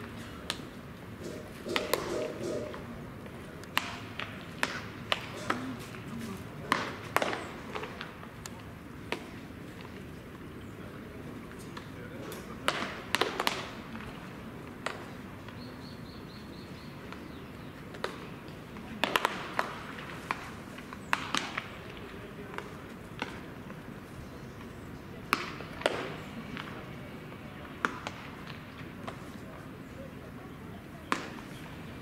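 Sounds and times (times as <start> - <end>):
baseballs smacking into gloves: 25.3 - 26.8, 27.8 - 29.2, 31.1 - 31.5.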